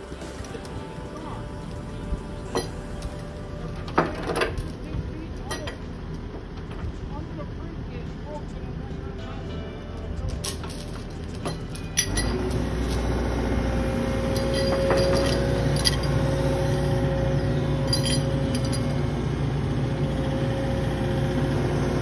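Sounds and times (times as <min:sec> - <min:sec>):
steel chains clinking: 0:00.0 - 0:06.2, 0:09.9 - 0:20.6
excavator engine and hydraulic whine: 0:00.0 - 0:22.0.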